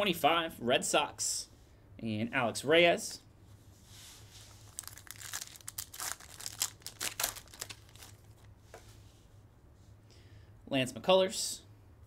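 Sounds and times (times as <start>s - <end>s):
plastic wrapper crinkling and tearing: 4.6s - 8.5s.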